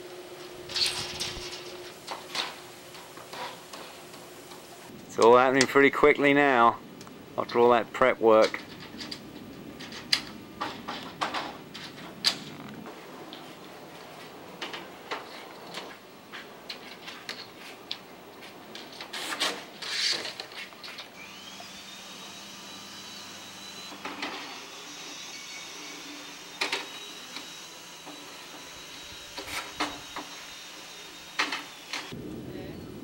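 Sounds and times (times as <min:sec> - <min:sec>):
small motor whining: 0:21.2 - 0:32.2.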